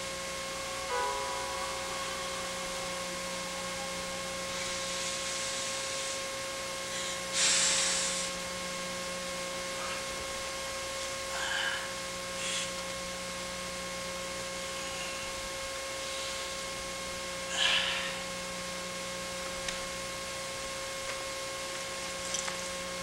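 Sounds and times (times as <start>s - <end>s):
electrical hum and hiss: 0.0s - 23.0s
short breathy hiss: 6.9s - 8.4s.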